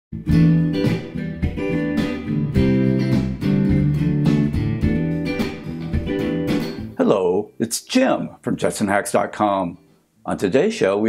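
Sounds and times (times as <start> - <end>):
steady beat: 0.2 - 6.9
guitar-led instrumental music: 0.2 - 7.1.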